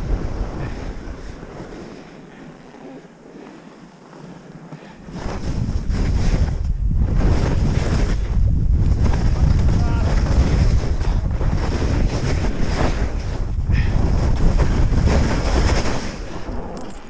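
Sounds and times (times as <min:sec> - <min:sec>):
wind buffeting microphone: 0:00.0 - 0:02.8, 0:05.0 - 0:17.0
skis scraping on snow: 0:00.0 - 0:17.0.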